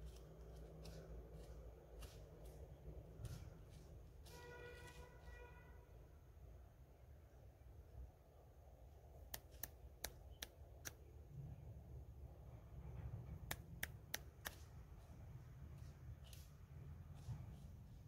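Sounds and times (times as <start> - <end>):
sharp quick clicks: 9.2 - 11.2, 13.3 - 14.7
faint low rumble: 11.1 - 18.0.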